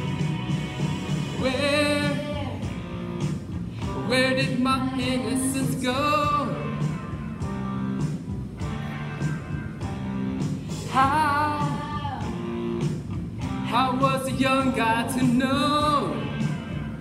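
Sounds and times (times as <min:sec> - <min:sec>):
guitar-led pop band: 0:00.0 - 0:17.0
person singing with vibrato: 0:01.3 - 0:03.0, 0:03.8 - 0:07.6, 0:10.6 - 0:12.6, 0:13.6 - 0:17.0.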